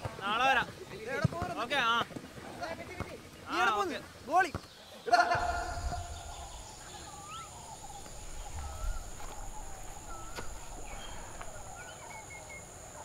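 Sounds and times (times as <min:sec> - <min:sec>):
high insect drone: 0:05.3 - 0:13.0
bird wavering call: 0:05.4 - 0:13.0.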